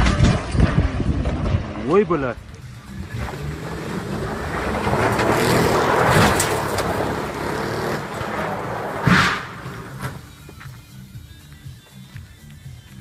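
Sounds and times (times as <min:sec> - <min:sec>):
tyres throwing up dirt and gravel: 0:00.0 - 0:10.7
car engine revving hard: 0:02.8 - 0:10.0
sudden loud burst: 0:09.0 - 0:10.0.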